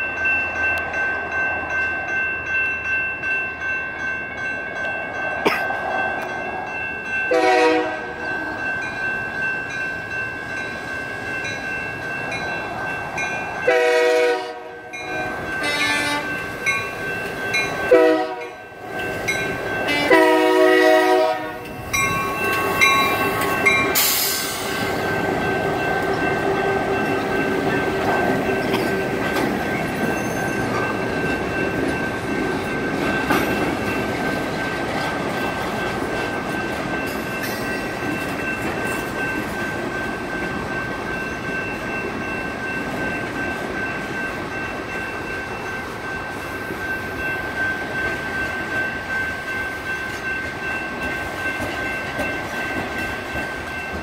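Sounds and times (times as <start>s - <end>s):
crossing signal electronic bell: 0.0s - 54.0s
diesel locomotives passing: 0.0s - 54.0s
truck horn blowing: 7.3s - 8.1s, 13.7s - 14.8s, 15.6s - 16.3s, 17.9s - 18.5s, 19.9s - 21.6s
locomotive horn blasts: 7.3s - 8.2s, 13.7s - 15.0s, 15.6s - 16.4s, 17.9s - 18.6s, 19.9s - 21.6s.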